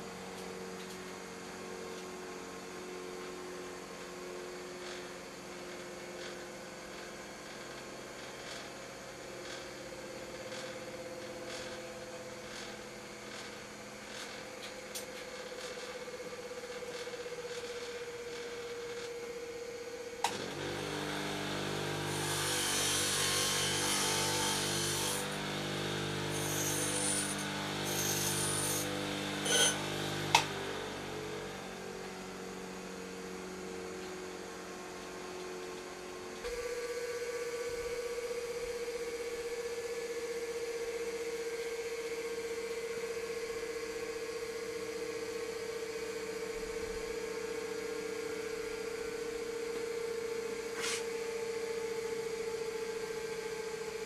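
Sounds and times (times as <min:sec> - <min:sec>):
bench grinder running: 0:20.2 - 0:34.8
metal grinding on wheel: 0:28.1 - 0:30.3.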